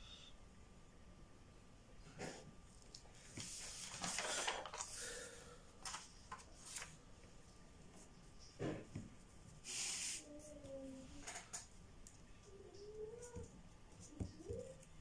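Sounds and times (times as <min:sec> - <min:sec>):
paper rustling: 0:03.2 - 0:05.2, 0:05.8 - 0:07.0
paper sliding: 0:03.3 - 0:05.0.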